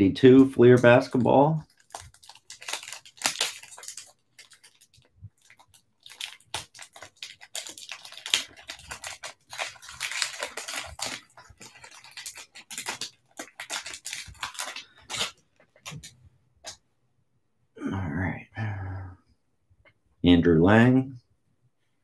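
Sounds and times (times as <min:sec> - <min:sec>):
card pack wrapper crinkling: 0:00.7 - 0:16.1.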